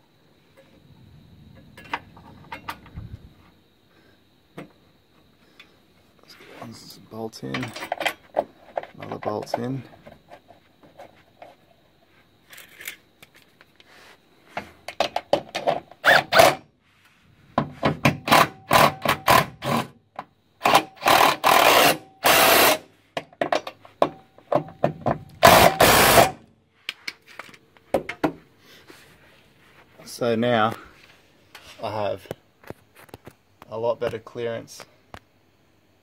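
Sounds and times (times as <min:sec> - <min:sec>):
power tool driving bolts: 0:15.0 - 0:16.6, 0:17.8 - 0:20.0, 0:20.6 - 0:23.7, 0:25.4 - 0:26.4.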